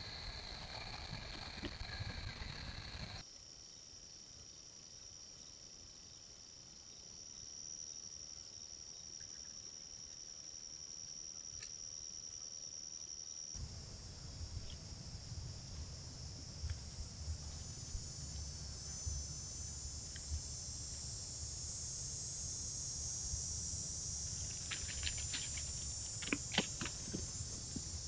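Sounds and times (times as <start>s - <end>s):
faint ticks: 0.0s - 3.2s, 19.7s - 21.0s
high-pitched insect chorus: 0.0s - 28.0s
low rumble: 13.6s - 26.2s.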